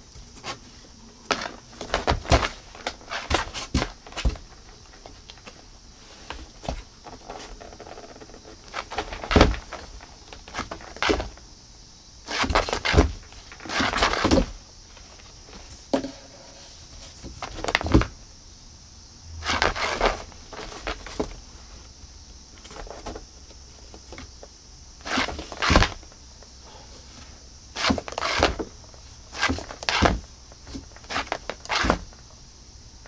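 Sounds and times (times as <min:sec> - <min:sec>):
cat claws scrabbling on cardboard: 0:12.3 - 0:14.6, 0:27.8 - 0:28.7, 0:29.3 - 0:32.2.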